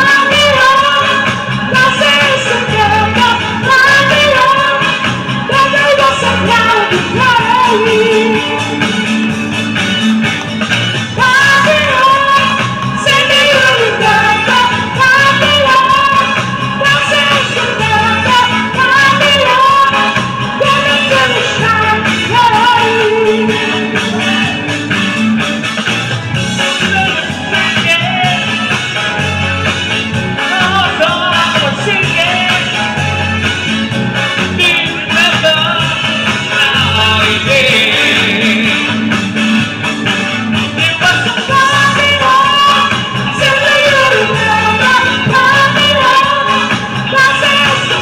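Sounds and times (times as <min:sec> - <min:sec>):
woman singing into a microphone: 0:00.0 - 0:09.1, 0:11.1 - 0:24.6, 0:30.4 - 0:33.1, 0:34.5 - 0:39.0, 0:40.8 - 0:48.0
amplified backing music: 0:00.0 - 0:48.0.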